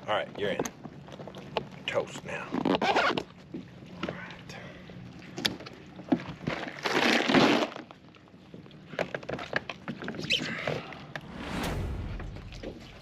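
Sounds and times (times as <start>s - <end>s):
loud rush of noise: 11.2s - 13.0s.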